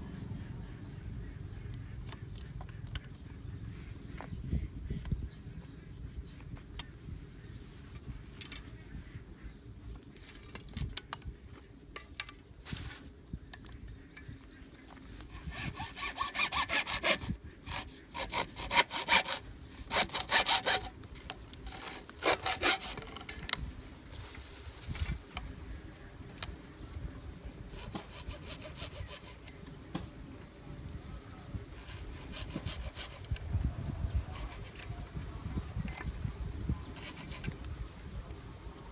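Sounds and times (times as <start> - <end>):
hacksaw cutting plastic pipe: 15.3 - 21.0, 21.6 - 23.4, 27.8 - 29.6, 31.8 - 33.4.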